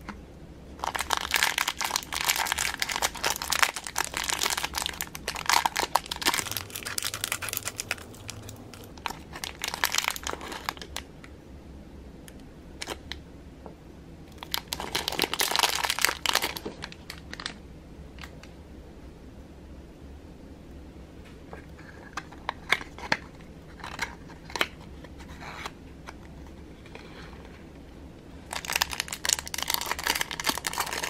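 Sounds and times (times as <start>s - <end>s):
plastic bags crinkling: 0.8s - 11.0s, 14.3s - 17.6s, 28.5s - 31.0s.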